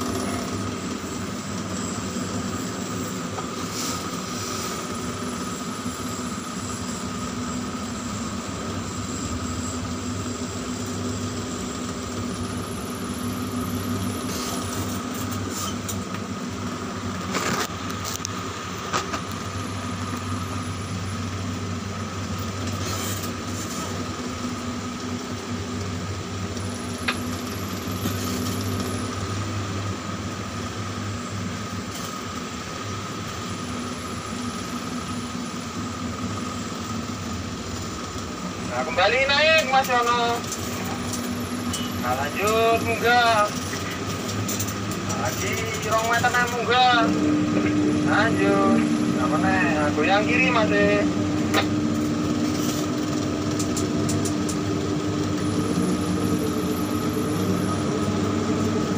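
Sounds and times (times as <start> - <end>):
crane motors humming: 0.0 - 58.9
high motor whine: 0.0 - 58.9.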